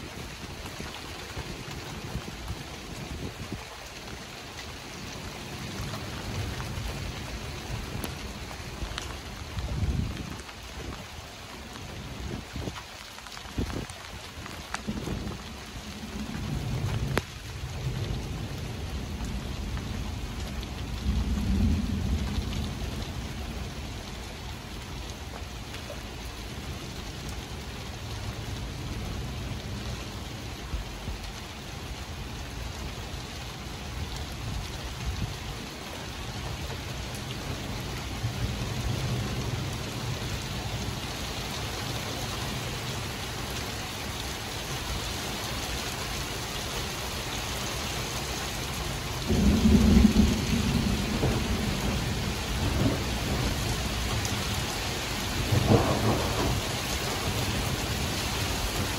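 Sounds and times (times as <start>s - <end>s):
rain hiss: 0.0s - 58.9s
thunder rumbling: 14.7s - 24.6s, 49.0s - 58.9s
thunder crack: 49.3s - 53.5s, 55.5s - 56.6s.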